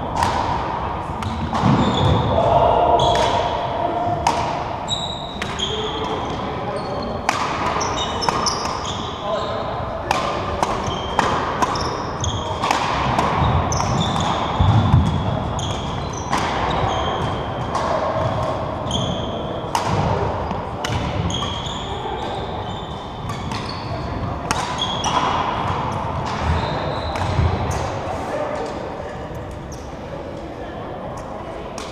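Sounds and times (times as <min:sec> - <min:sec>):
rackets striking shuttlecock: 0:00.1 - 0:02.2, 0:03.0 - 0:06.2, 0:07.2 - 0:09.1, 0:10.1 - 0:19.1, 0:19.7 - 0:21.6, 0:23.2 - 0:27.9
low voices: 0:00.9 - 0:04.9
sneakers squeaking on wooden floor: 0:01.2 - 0:03.3, 0:04.8 - 0:09.7, 0:10.8 - 0:12.6, 0:13.2 - 0:27.8.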